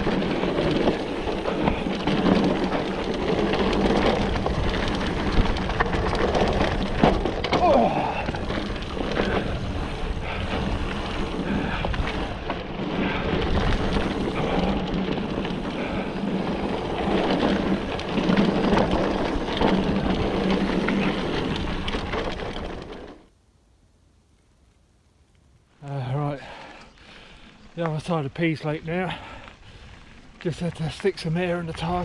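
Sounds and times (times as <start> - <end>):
wind buffeting microphone: 0.0 - 22.9
bike rattling over bumps: 0.0 - 23.3, 26.0 - 32.0
bike tyres on dirt: 0.0 - 23.4, 24.0 - 32.0.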